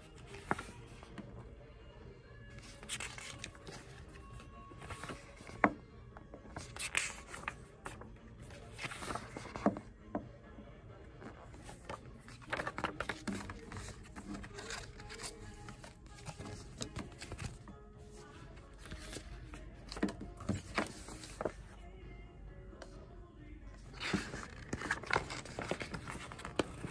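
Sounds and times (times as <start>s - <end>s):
paper cards rustling and sliding: 0.0s - 1.3s, 2.6s - 5.8s, 6.5s - 9.8s, 11.2s - 21.8s, 23.9s - 26.9s
quiet background music: 0.0s - 26.9s.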